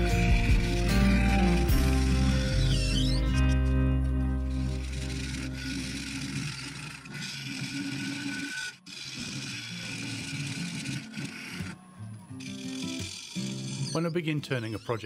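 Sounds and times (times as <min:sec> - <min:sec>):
lathe tool scraping resin: 0:04.6 - 0:11.8, 0:12.4 - 0:15.0.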